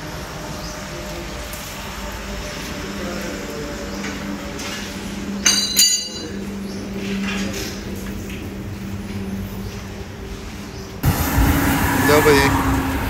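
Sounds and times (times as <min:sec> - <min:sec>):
sharp metallic clinks: 0:05.4 - 0:06.5.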